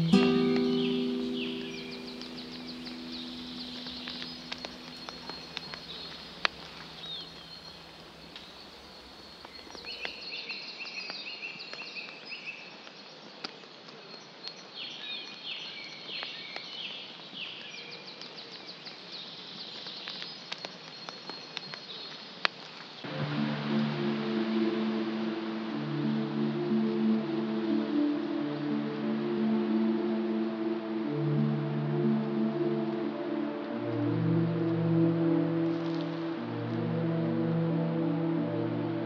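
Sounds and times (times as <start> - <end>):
sustained guitar notes: 0.0 - 7.0
birds chirping: 0.0 - 10.2
faint hiss: 0.0 - 10.2, 22.8 - 39.0.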